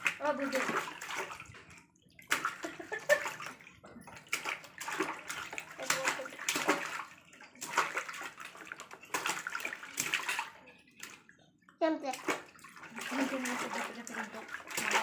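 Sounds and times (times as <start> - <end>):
hands splashing water in tub: 0.0 - 11.4, 12.0 - 15.0.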